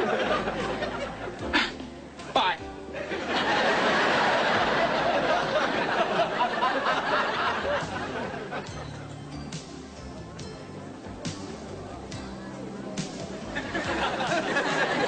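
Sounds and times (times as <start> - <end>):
audience laughing: 0.0 - 1.8, 2.9 - 9.1, 13.5 - 15.0.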